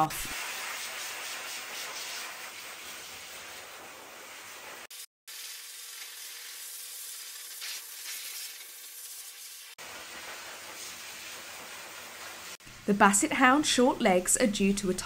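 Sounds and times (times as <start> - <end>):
dog dryer blowing air: 0.1 - 4.9, 9.8 - 12.6.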